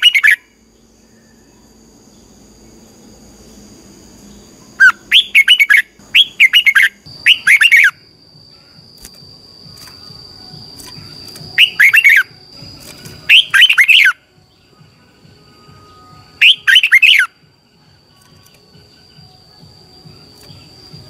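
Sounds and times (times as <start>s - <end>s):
bird singing falling notes: 9.0s - 14.2s.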